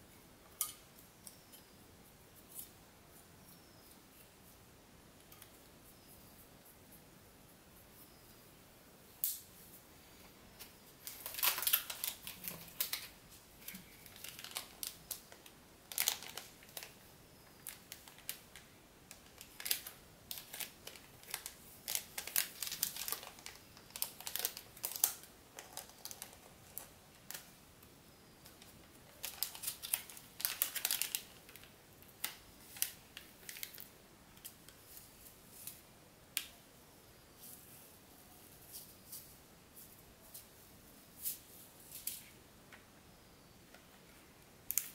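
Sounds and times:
plastic bag crinkling: 11.0 - 27.5, 29.1 - 33.9.

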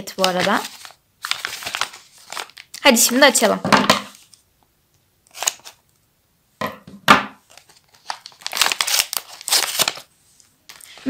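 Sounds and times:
paper packet crinkling and tearing: 0.0 - 3.5, 5.3 - 5.8, 7.4 - 10.1, 10.7 - 11.0.

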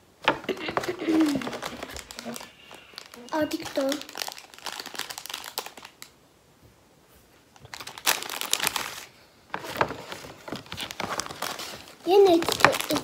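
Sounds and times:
plastic wrappers crinkling: 0.2 - 6.2, 7.5 - 13.0
cardboard box rustling: 9.6 - 13.0.

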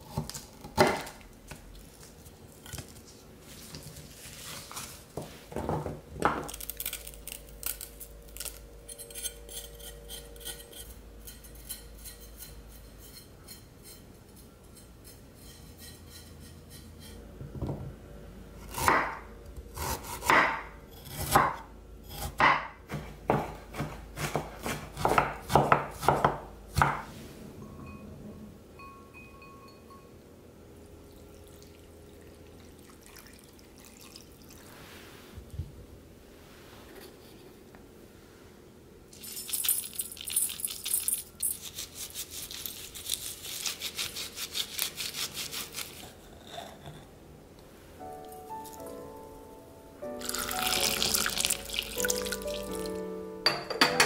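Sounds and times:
knife scraping ginger skin: 6.5 - 14.0, 40.8 - 46.9
knife chopping on wooden board: 18.8 - 19.2, 19.8 - 21.6, 22.2 - 27.0.

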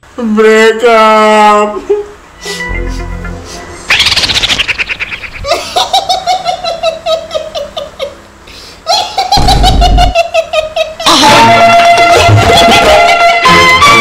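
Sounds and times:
high-pitched laughter: 3.9 - 8.2, 8.8 - 13.5.

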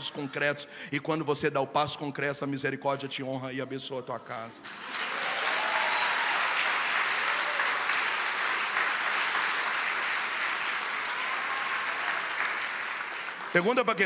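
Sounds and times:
congregation applauding: 4.6 - 14.0.

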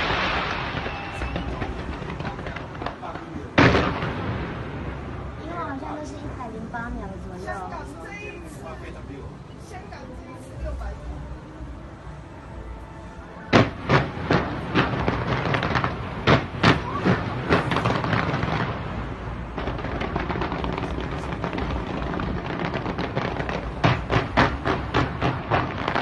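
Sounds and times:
firework bangs: 0.0 - 5.8, 13.5 - 26.0
firework crackling: 0.0 - 10.9, 13.5 - 26.0.

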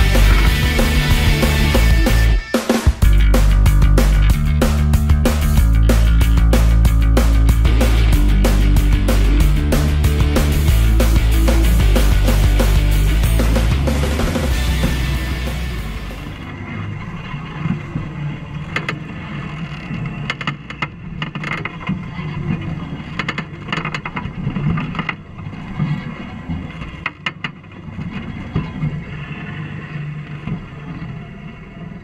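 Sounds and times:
low engine rumble: 0.0 - 20.2.

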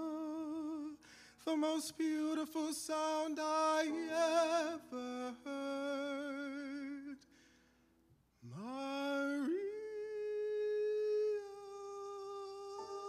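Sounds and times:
man singing high note: 8.5 - 13.0.

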